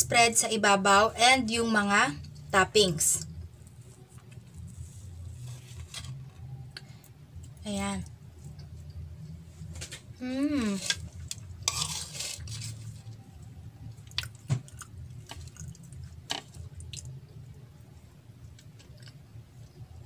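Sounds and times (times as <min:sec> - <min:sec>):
person humming: 0:10.2 - 0:10.9
fork scraping a ceramic plate: 0:11.6 - 0:12.9.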